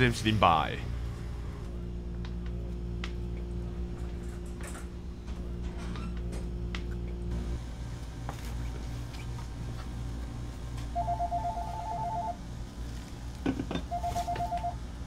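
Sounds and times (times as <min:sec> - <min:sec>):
low hum: 0:00.0 - 0:15.0
phone ringtone beeping: 0:10.9 - 0:12.4, 0:13.9 - 0:14.8.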